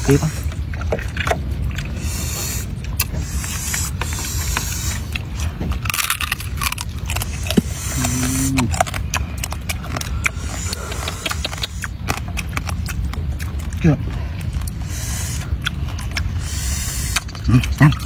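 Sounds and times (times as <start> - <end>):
low rumble: 0.0 - 18.0
crustacean shell cracking and crunching: 2.8 - 14.8
person humming: 7.9 - 8.7.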